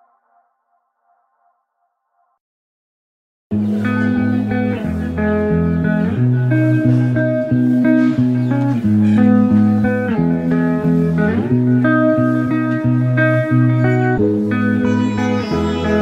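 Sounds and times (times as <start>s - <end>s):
low bass line: 3.6s - 16.0s
plucked guitar: 3.6s - 16.0s.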